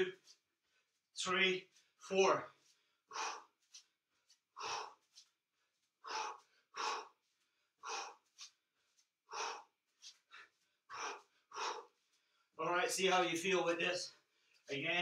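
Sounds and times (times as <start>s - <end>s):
man breathing hard: 1.7s - 12.6s.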